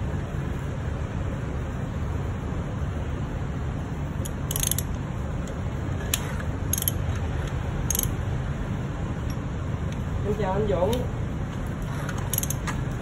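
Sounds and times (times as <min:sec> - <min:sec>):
low background noise: 0:00.0 - 0:13.0
hand tool metallic clicks: 0:04.2 - 0:05.0, 0:06.1 - 0:07.0, 0:07.9 - 0:08.2, 0:12.3 - 0:12.8.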